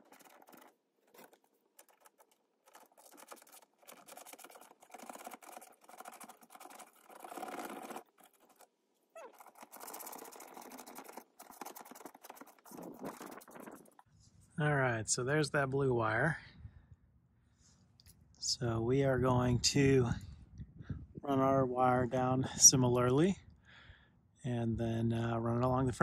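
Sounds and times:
plastic scraping and rustling: 0:00.0 - 0:14.1.

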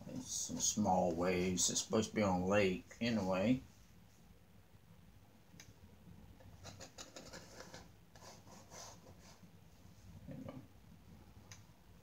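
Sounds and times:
palette knife scratching on canvas: 0:06.6 - 0:09.4.

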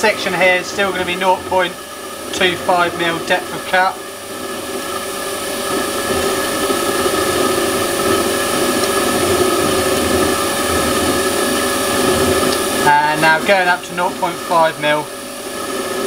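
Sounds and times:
lathe motor and gear whine: 0:00.0 - 0:16.0.

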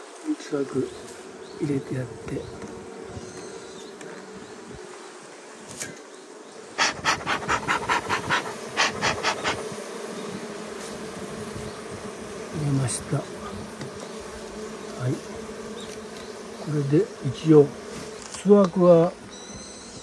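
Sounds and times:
bees buzzing: 0:00.0 - 0:20.0
bee smoker bellows puffing: 0:06.8 - 0:16.4.

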